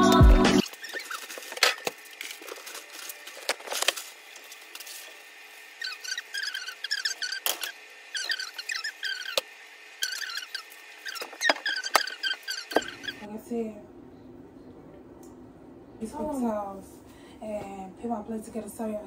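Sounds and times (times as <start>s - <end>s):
background music: 0.0s - 0.6s
high squeaky chirps: 0.6s - 1.4s, 5.8s - 13.3s.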